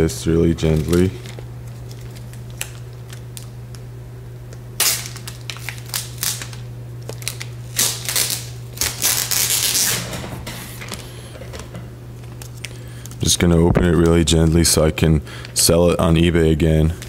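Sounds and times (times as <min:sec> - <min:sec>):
plastic wrapping crinkling: 0:00.6 - 0:03.6, 0:04.8 - 0:10.0.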